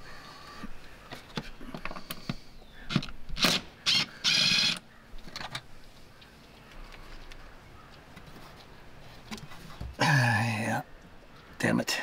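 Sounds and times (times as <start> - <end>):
cordless drill running: 3.4 - 4.8
handling clicks and knocks: 5.2 - 5.7.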